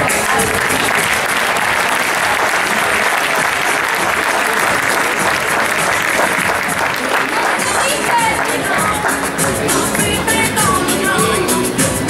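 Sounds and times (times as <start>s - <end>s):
audience applauding: 0.0s - 12.0s
voices: 0.0s - 12.0s.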